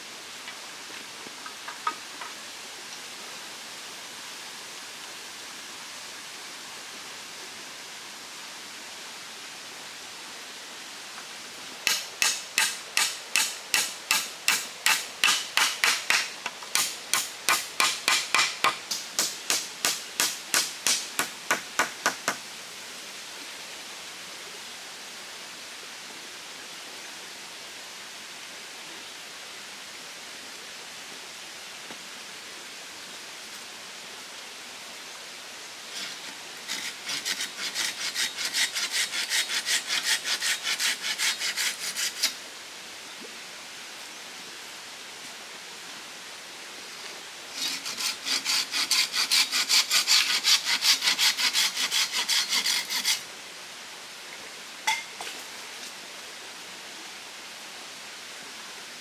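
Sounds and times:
stream running: 0.0 - 59.0
tool knocking on bamboo pole: 14.1 - 22.4.

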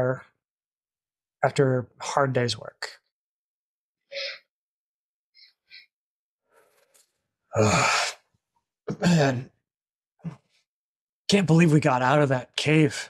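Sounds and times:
person sighing: 7.6 - 8.2, 8.9 - 9.4.

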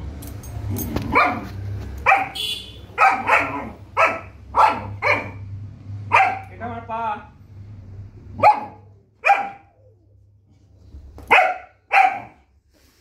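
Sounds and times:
puppy barking: 1.0 - 6.5, 8.3 - 9.9, 11.2 - 12.5.

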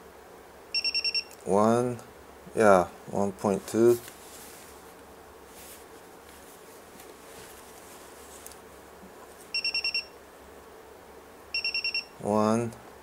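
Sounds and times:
faint room noise: 0.0 - 13.0
short high beeps: 0.8 - 1.3, 9.6 - 10.2, 11.6 - 12.1.

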